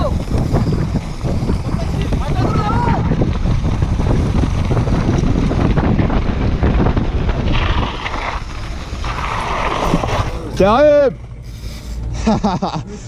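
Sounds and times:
wind buffeting microphone: 0:00.0 - 0:11.5
mountain bike rattling over dirt: 0:00.0 - 0:11.6
short hissing noises: 0:11.4 - 0:12.1.

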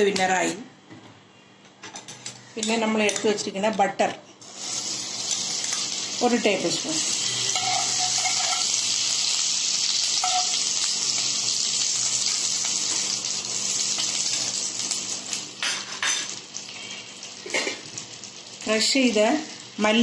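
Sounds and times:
butter sizzling in hot oil: 0:04.4 - 0:20.0.

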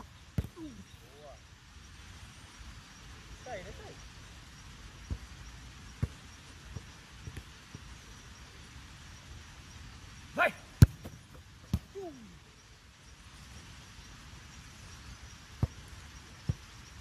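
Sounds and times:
football being struck: 0:00.4 - 0:00.6, 0:10.8 - 0:11.9.

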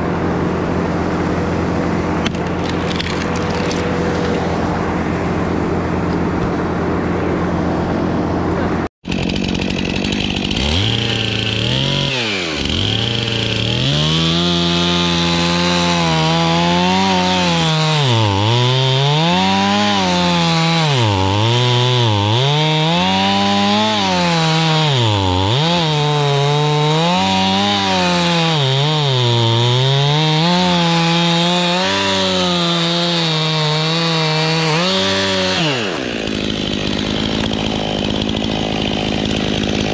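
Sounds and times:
chainsaw cutting wood: 0:00.0 - 0:08.4, 0:09.0 - 0:39.9
steady engine drone: 0:00.0 - 0:08.9.

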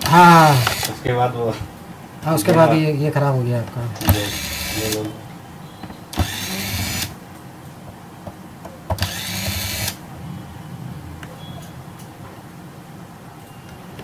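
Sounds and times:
electric screwdriver running: 0:00.0 - 0:01.0, 0:04.0 - 0:05.0, 0:06.2 - 0:07.2, 0:09.0 - 0:10.0.

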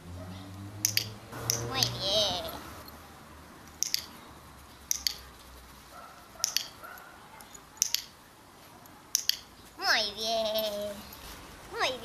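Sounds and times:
sharp clicks in pairs: 0:00.8 - 0:02.0, 0:03.8 - 0:04.2, 0:04.9 - 0:05.3, 0:06.4 - 0:06.8, 0:07.8 - 0:08.2, 0:09.1 - 0:09.5.

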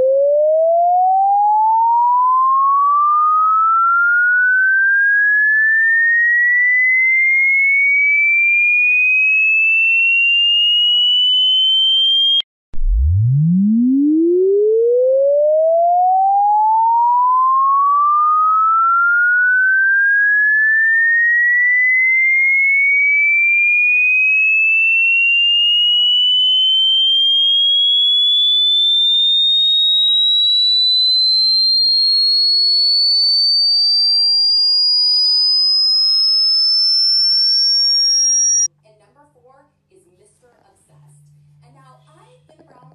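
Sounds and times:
electronic tone sweeping upward: 0:00.0 - 0:38.7.

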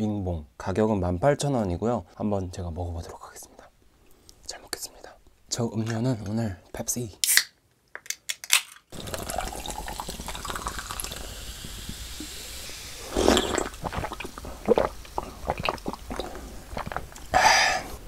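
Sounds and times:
soda fizzing while poured: 0:08.9 - 0:17.1
person swallowing and sipping: 0:09.0 - 0:17.8
loud breath: 0:17.3 - 0:18.0.

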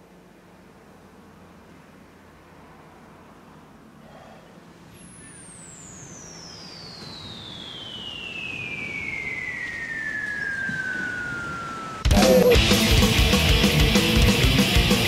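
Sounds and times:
high whistle gliding downward: 0:04.9 - 0:13.3.

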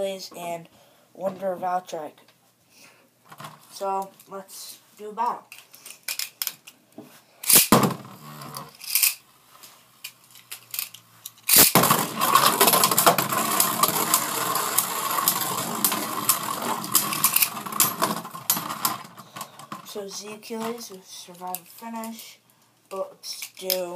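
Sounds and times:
sharp clicks of tops colliding: 0:07.4 - 0:08.0, 0:11.5 - 0:18.2
spinning tops launched: 0:07.4 - 0:09.2, 0:11.5 - 0:18.7
spinning tops whirring on plastic: 0:11.5 - 0:19.2.

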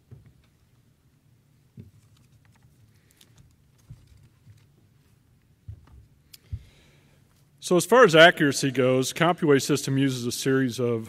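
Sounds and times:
soft low thumps: 0:05.6 - 0:06.8.

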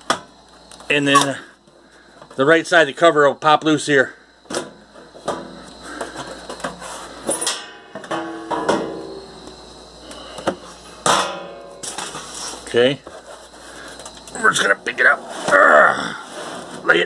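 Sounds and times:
metal cover sliding scrape: 0:11.8 - 0:13.7, 0:16.2 - 0:16.8.

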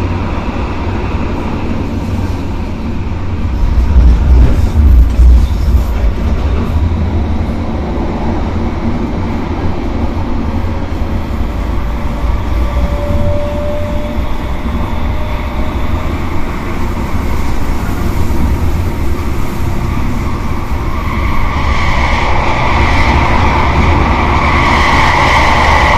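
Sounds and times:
wheels rumbling on rail: 0:00.0 - 0:25.9
faint whine: 0:10.6 - 0:17.0.

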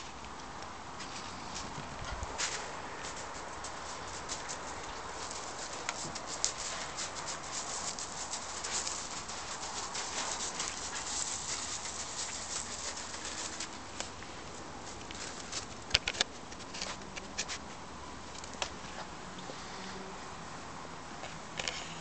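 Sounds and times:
paws crunching on gravel: 0:01.0 - 0:15.9.

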